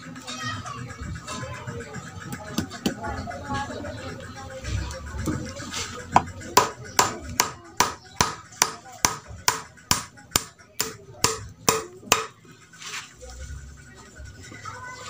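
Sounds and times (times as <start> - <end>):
hammer striking nail into wood: 6.6 - 12.4.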